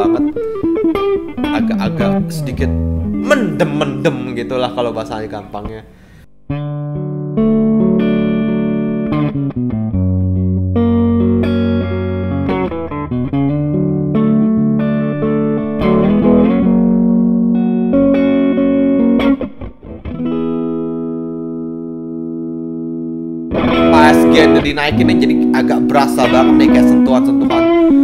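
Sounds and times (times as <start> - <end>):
overdriven electric guitar chords: 0.0 - 5.3, 6.0 - 28.0.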